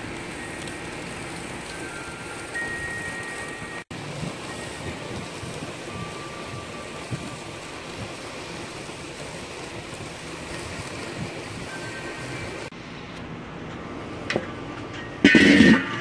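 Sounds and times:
steaks sizzling on a grill: 0.0 - 12.7.

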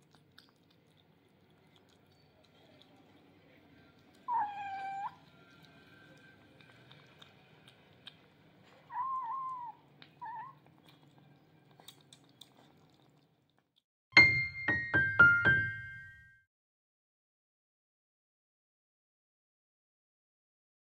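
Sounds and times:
kittens chewing: 0.0 - 13.8
kitten meowing: 4.3 - 5.2, 8.9 - 10.6
electric piano jingle: 14.2 - 16.4.

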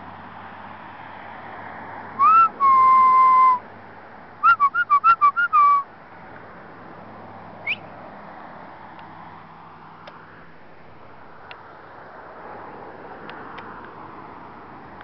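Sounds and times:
person whistling: 2.2 - 3.6, 4.4 - 5.8, 7.6 - 7.8.

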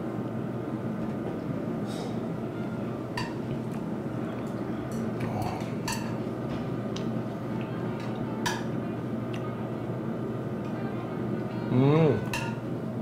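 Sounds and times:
low background hum: 0.0 - 13.0
dishes and chopsticks clinking: 3.2 - 3.4, 4.4 - 6.3, 12.2 - 12.6.

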